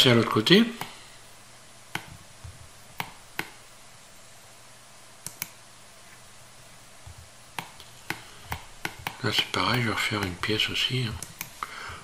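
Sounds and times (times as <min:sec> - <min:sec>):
faint room hum: 0:00.0 - 0:12.0
mouse and keyboard clicks: 0:05.2 - 0:05.6.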